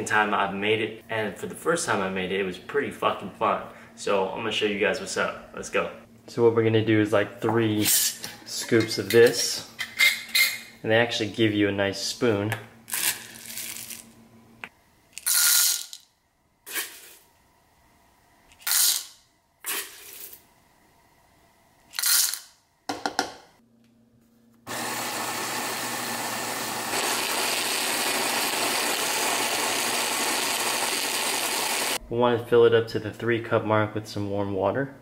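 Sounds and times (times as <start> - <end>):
coffee grinder grinding: 12.9 - 14.0, 15.2 - 16.0, 22.0 - 22.4, 24.7 - 32.0.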